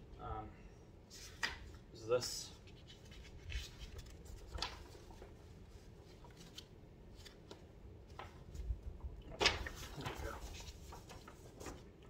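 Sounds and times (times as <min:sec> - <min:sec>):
stiff paper rustling: 0:02.6 - 0:08.7, 0:09.3 - 0:12.0.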